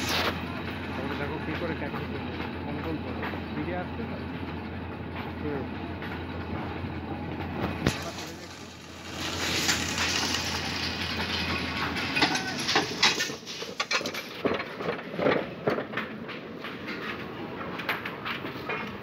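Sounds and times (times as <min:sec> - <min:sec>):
steel wheels rattling on rails: 0:00.0 - 0:19.0
metal clanks of ore tubs: 0:07.8 - 0:15.4.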